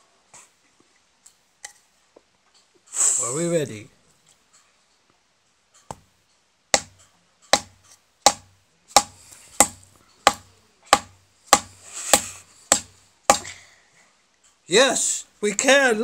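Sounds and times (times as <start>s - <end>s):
bread knocking on a nail: 6.8s - 13.5s.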